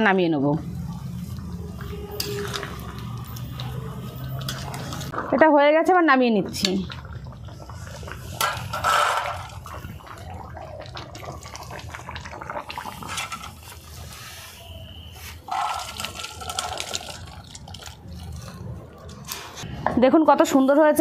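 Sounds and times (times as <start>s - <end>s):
thick curry sloshing: 0.6s - 5.3s.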